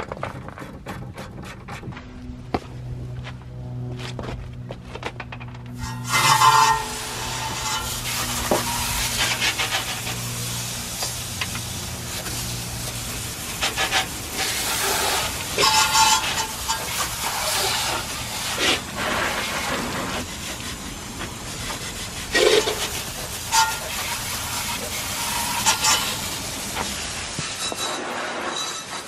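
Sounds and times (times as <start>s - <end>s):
water spray hissing and splattering: 6.1s - 28.6s.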